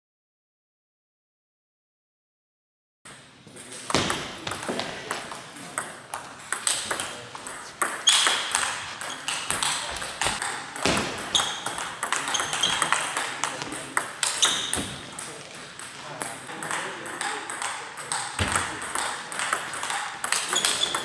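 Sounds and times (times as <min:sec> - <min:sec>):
table tennis ball clicking: 0:05.8 - 0:13.3, 0:14.0 - 0:14.9, 0:16.7 - 0:21.0.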